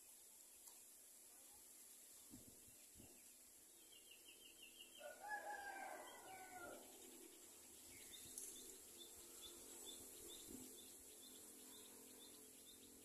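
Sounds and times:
faint high chirps: 0:00.0 - 0:13.0
faint rooster crowing: 0:04.9 - 0:07.0.

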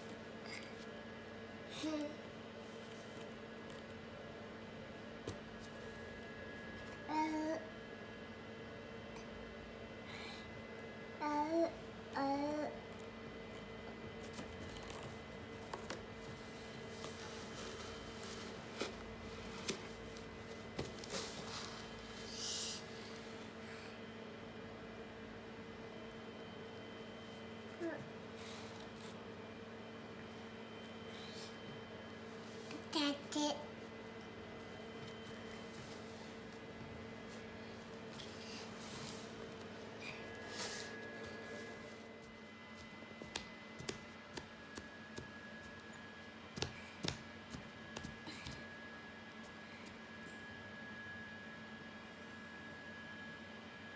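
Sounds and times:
faint steady hum: 0:00.0 - 0:53.9.

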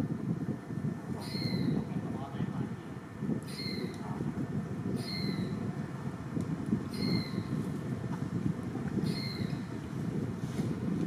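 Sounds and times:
wind noise on microphone: 0:00.0 - 0:11.0
high whistled call: 0:01.2 - 0:01.8, 0:03.5 - 0:03.9, 0:05.0 - 0:05.6, 0:06.9 - 0:07.5, 0:09.0 - 0:09.6.

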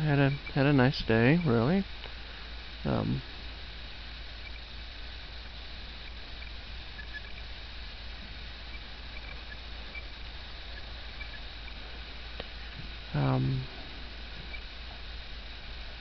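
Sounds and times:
steady hiss and low hum: 0:00.0 - 0:16.0
faint high chirps: 0:05.8 - 0:07.7, 0:08.4 - 0:14.8.

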